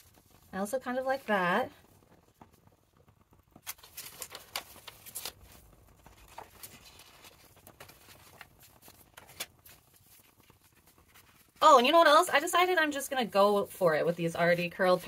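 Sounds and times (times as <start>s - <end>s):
paper pieces tapping and rustling: 3.6s - 11.4s.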